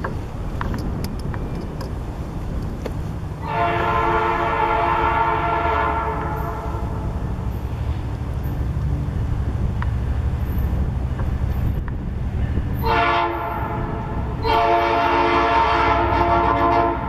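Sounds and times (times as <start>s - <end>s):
locomotive horn blasts: 3.4s - 7.2s, 12.8s - 17.0s.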